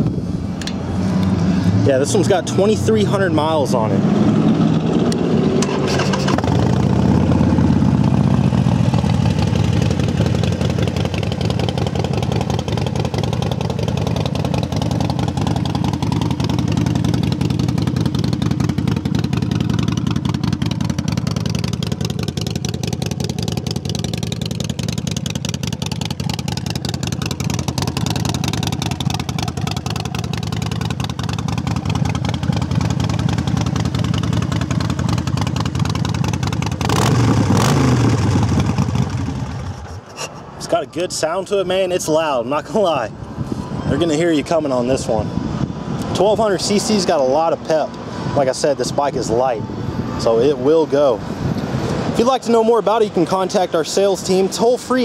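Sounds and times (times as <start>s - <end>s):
motorcycle engine idling: 4.4s - 40.1s.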